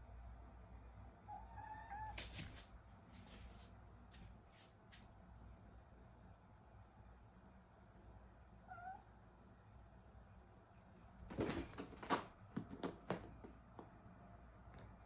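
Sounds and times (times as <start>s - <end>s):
kitten meowing: 1.3s - 2.2s, 8.7s - 9.0s
thumps and claw scrabbling: 11.2s - 13.6s.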